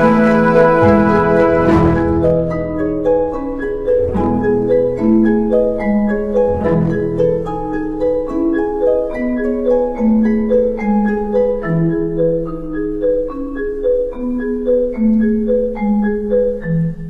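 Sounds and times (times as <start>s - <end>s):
soft plucked notes: 0.0s - 8.5s
held orchestral notes: 0.0s - 10.2s.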